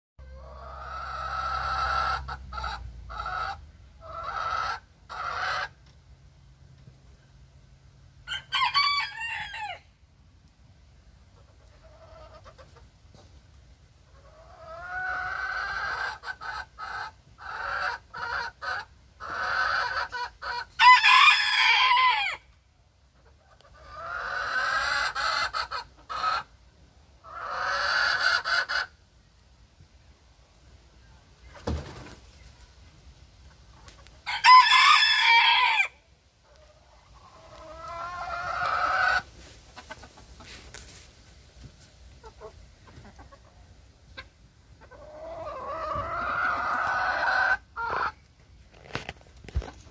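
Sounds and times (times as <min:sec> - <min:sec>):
chickens calling: 0:00.2 - 0:06.0, 0:11.1 - 0:13.3, 0:13.9 - 0:29.4, 0:31.4 - 0:49.9
thump: 0:31.6 - 0:32.1.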